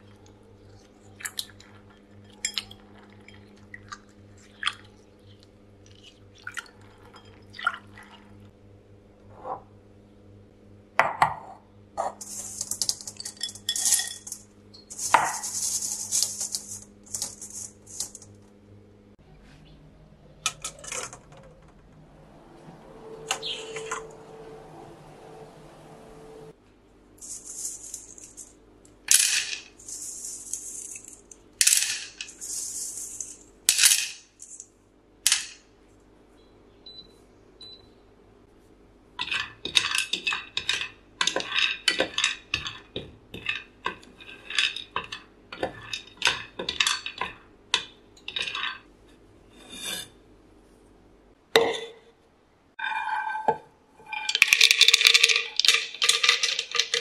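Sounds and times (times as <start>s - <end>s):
seeds stirred in a pan: 12.0s - 18.3s, 27.2s - 28.6s, 29.6s - 31.4s, 32.1s - 33.5s, 39.2s - 48.8s
seeds rattling into a plastic cup: 12.2s - 18.3s, 27.2s - 28.5s, 29.1s - 31.4s, 32.0s - 34.6s
seeds tipped from a sieve: 13.8s - 18.3s.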